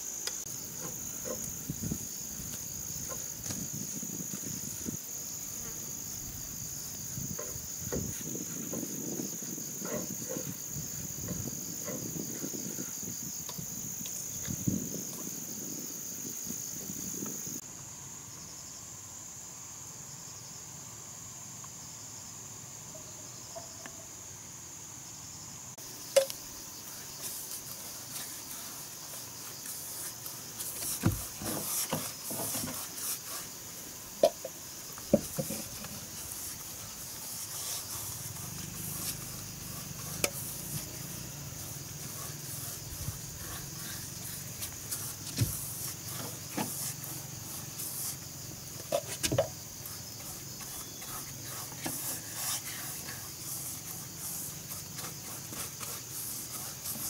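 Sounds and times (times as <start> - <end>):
insects chirring: 0.0 - 57.0
paintbrush rubbing on wood: 7.1 - 12.9, 26.8 - 49.2, 49.8 - 57.0.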